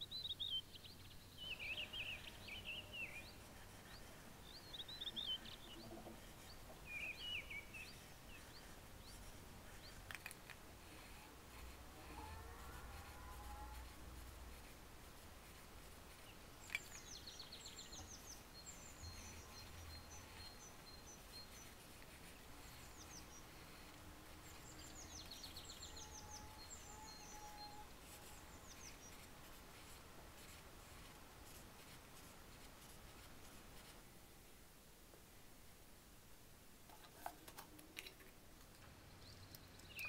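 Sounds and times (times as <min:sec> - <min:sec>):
small bird chirping and trilling: 0:13.0 - 0:33.9.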